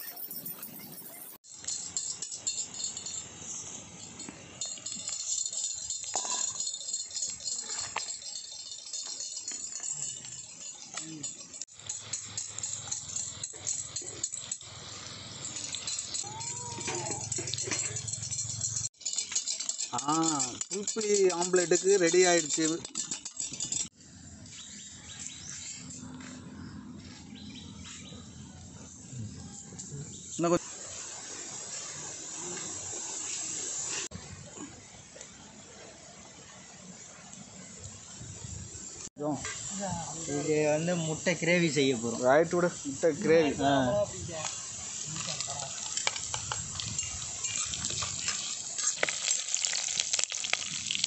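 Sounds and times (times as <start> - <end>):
birds chirping: 0.0 - 1.4
food deep-frying in hot oil: 1.4 - 23.9, 30.3 - 51.0
whisk clicking against steel bowl: 4.6 - 14.6, 16.8 - 23.9.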